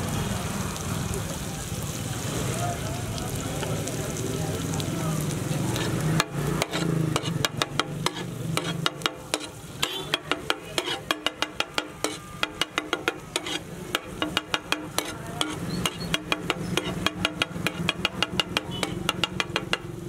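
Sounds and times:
masala sizzling: 0:00.0 - 0:20.0
spatula clanking on iron pan: 0:05.8 - 0:20.0.

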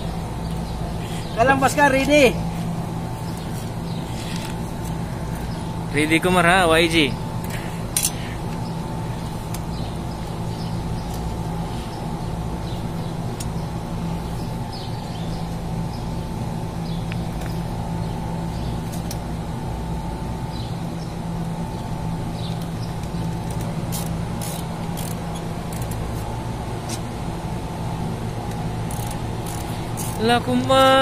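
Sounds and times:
machinery humming: 0:00.0 - 0:31.0.

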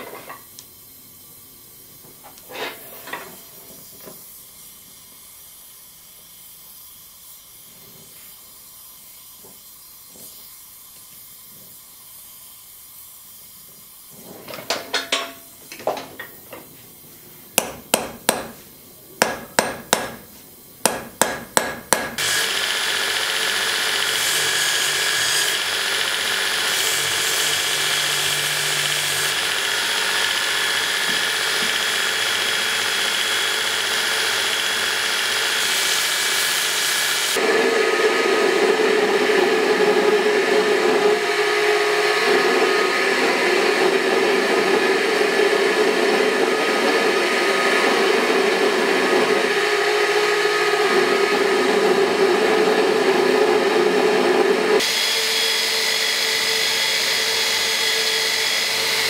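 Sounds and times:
hammer striking rivet on anvil: 0:17.6 - 0:18.6, 0:19.2 - 0:20.2, 0:20.8 - 0:22.2
belt grinder whining: 0:22.2 - 0:39.2, 0:53.8 - 0:59.0.

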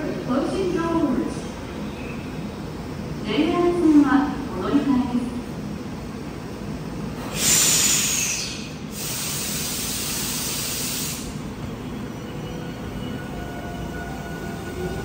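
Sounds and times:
low train hum: 0:00.0 - 0:15.0
air brakes hissing: 0:07.2 - 0:11.5.

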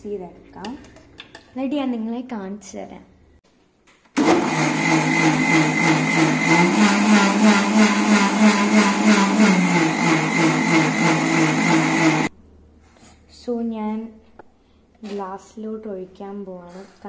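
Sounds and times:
mixer grinder motor hum: 0:04.2 - 0:12.3.

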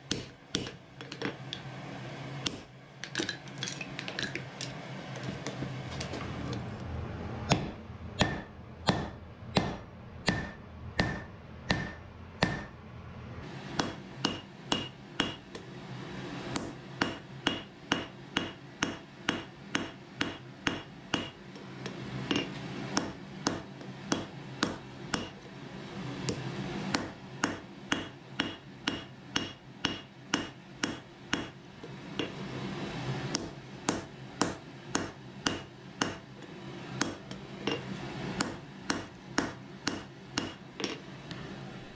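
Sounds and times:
hammer striking iron on anvil: 0:00.0 - 0:00.8, 0:02.4 - 0:02.7, 0:07.5 - 0:12.8, 0:13.8 - 0:15.6, 0:16.6 - 0:21.4, 0:22.3 - 0:25.4, 0:26.3 - 0:31.6, 0:33.3 - 0:36.3, 0:37.0 - 0:37.8, 0:38.4 - 0:41.0.

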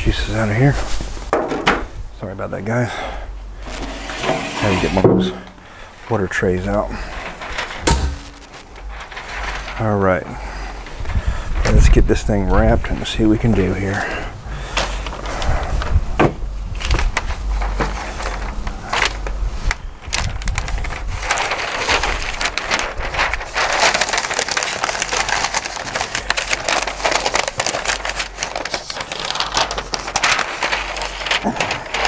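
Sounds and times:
paper crinkling and rustling: 0:03.6 - 0:32.0
sharp knocks: 0:07.8 - 0:08.4.

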